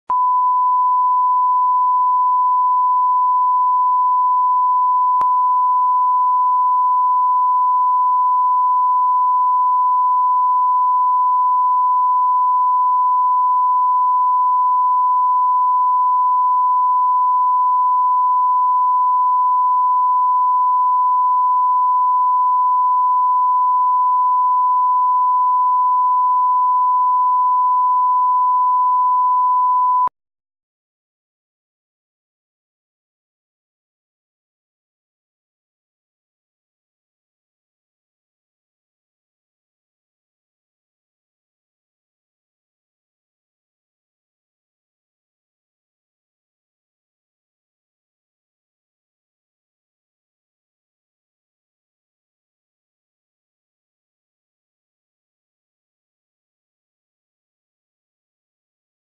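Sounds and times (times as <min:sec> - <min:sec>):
steady sine tone: 0:00.1 - 0:30.1.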